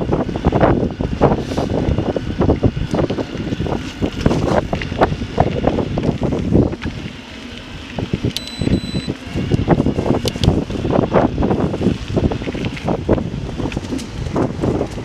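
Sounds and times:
bike tyres rumbling on dirt trail: 0.0s - 8.4s, 9.2s - 15.0s
wind buffeting microphone: 0.0s - 15.0s
brief high tone: 8.4s - 9.2s
bike knocks and rattles: 12.2s - 15.0s.

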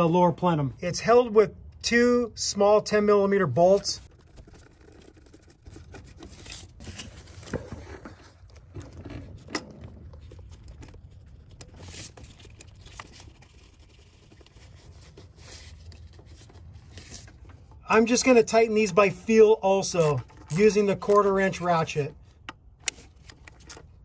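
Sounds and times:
small metal clicks and scrapes: 3.8s - 18.3s, 19.8s - 24.0s.

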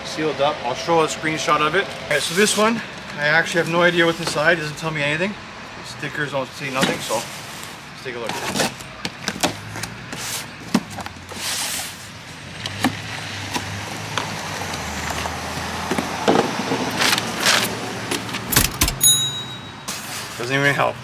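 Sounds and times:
vehicle engine hum: 0.0s - 21.0s
packing paper and foam rustling: 6.7s - 12.2s.

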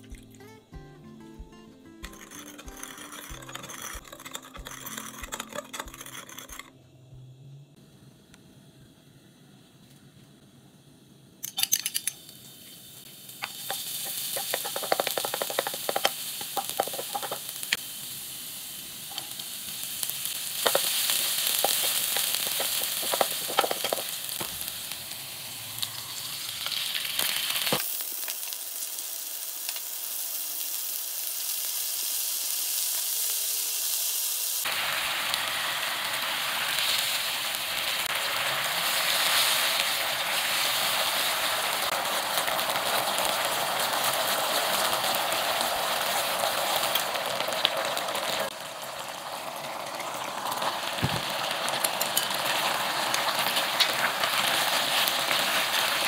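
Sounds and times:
food sizzling in hot oil: 1.3s - 6.7s, 11.4s - 56.0s
wooden spoon scraping a pan: 2.1s - 6.7s, 21.6s - 24.1s
sauce boiling in a pan: 12.2s - 56.0s.

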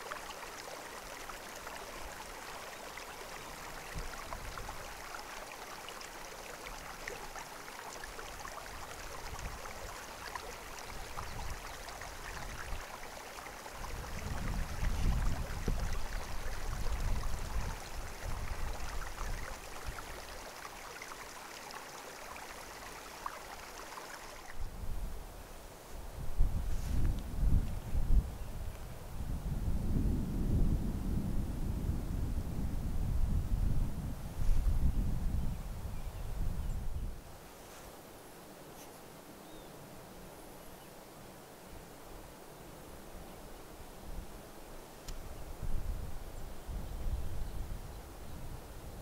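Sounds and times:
creek flowing: 0.0s - 25.8s
wind buffeting microphone: 13.8s - 20.1s, 26.0s - 37.2s, 45.2s - 49.0s.

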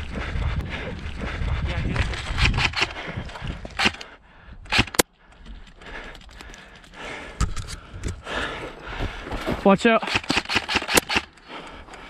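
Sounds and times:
sharp cracks: 2.2s - 3.0s, 3.7s - 4.1s, 4.7s - 5.1s, 10.0s - 11.5s.

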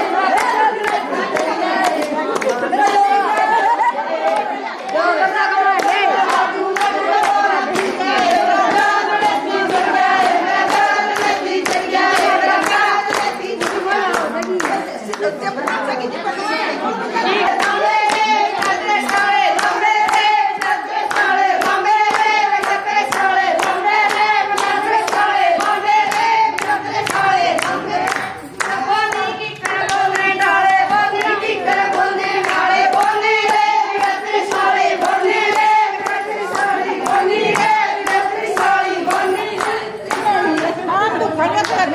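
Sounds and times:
women singing folk song: 0.0s - 15.6s, 16.8s - 41.9s
hands clapping to a beat: 0.0s - 15.9s, 17.4s - 40.9s, 41.5s - 41.9s.

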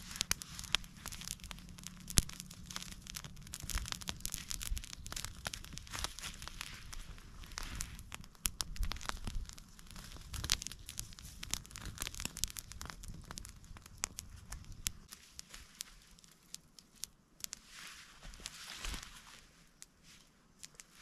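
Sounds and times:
campfire crackling: 0.0s - 21.0s.

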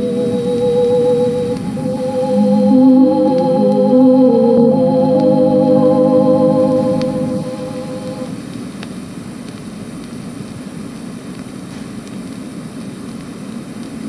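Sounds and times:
organ chord: 0.0s - 8.4s
recording hiss and rumble: 0.0s - 14.0s.

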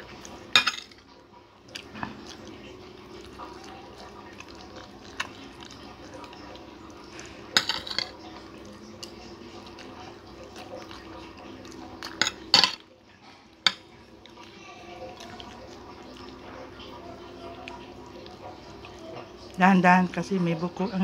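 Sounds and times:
cutlery clinking on a plate: 0.6s - 1.0s, 7.6s - 8.2s, 12.0s - 12.8s.

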